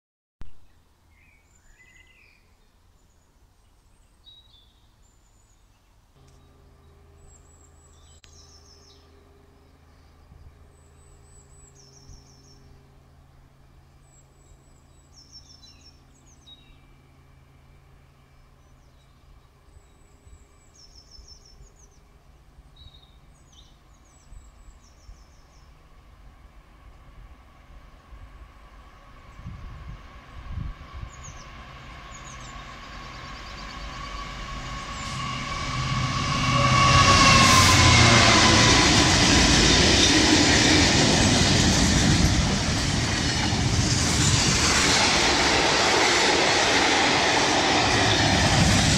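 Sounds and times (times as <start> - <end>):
songbird singing trill: 0.5 - 25.9, 30.9 - 35.8.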